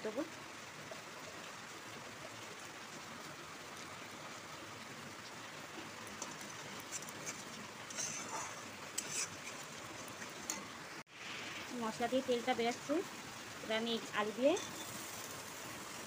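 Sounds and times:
metal spatula scraping pan: 0:06.8 - 0:09.7, 0:14.6 - 0:15.1
paste sizzling in hot oil: 0:06.8 - 0:10.6, 0:14.0 - 0:16.0.

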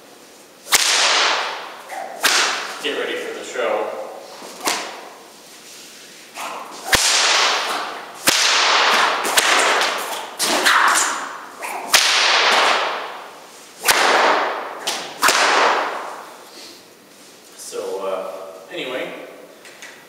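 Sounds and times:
whip cracking with echo: 0:00.6 - 0:03.0, 0:04.6 - 0:05.2, 0:06.4 - 0:16.4.

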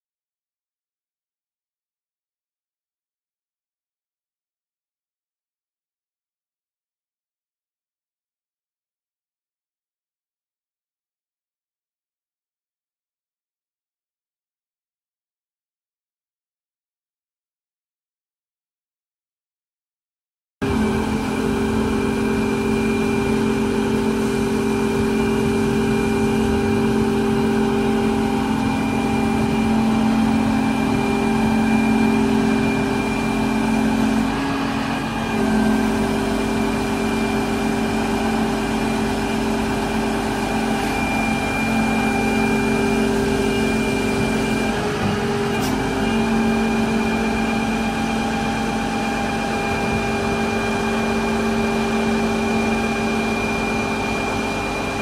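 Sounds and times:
excavator diesel engine running: 0:20.6 - 0:55.0
hydraulic pump whine: 0:20.6 - 0:55.0.

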